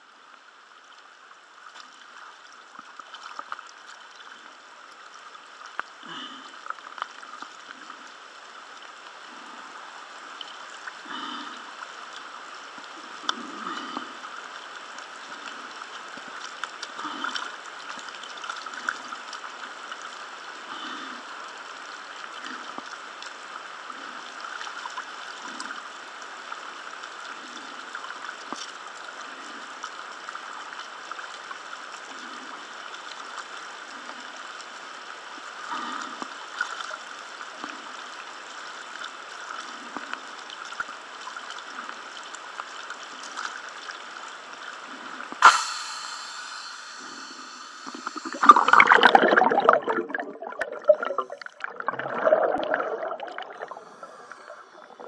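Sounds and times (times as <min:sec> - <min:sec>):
water sloshing and lapping: 0:01.7 - 0:30.0, 0:35.3 - 0:55.0
sharp knock: 0:45.4 - 0:46.8
underwater regulator bubbles: 0:45.4 - 0:55.0.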